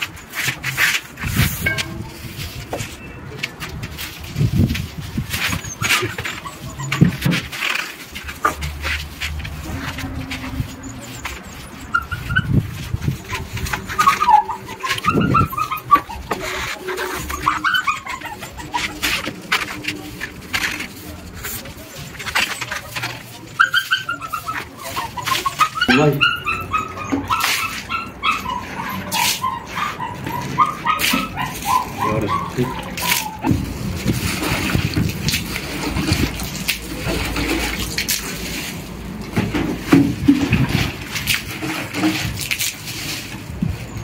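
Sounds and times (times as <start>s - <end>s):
dog whining: 5.4s - 8.5s, 9.5s - 33.5s
water splashing onto concrete: 32.4s - 44.0s.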